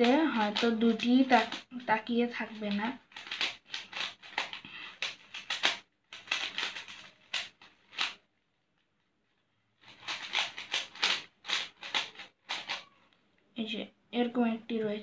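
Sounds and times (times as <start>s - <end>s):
puzzle cube clicking as turned: 0.0s - 8.3s, 9.8s - 13.0s.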